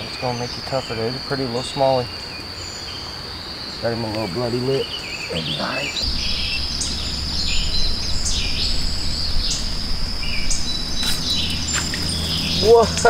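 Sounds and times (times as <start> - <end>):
high-pitched insect drone: 0.0 - 13.0
low steady rumble: 6.0 - 13.0.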